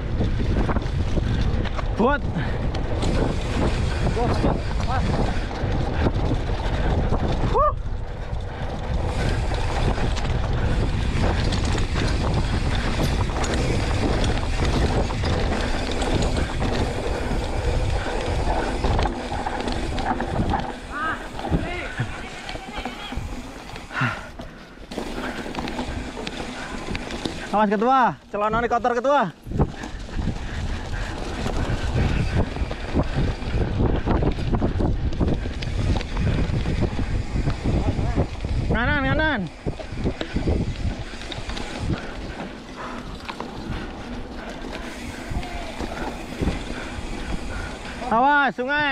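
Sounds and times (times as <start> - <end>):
bike clicks and rattles: 0.0 - 48.9
bike rolling on dirt track: 0.0 - 48.9
wind rushing over microphone: 0.0 - 48.9
bike knocks and rattles: 8.3 - 27.5.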